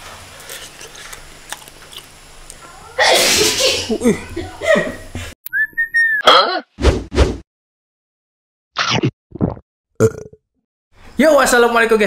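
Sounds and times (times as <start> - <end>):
man chewing food: 0.4 - 2.6
sudden loud sneeze-like burst: 3.0 - 3.9.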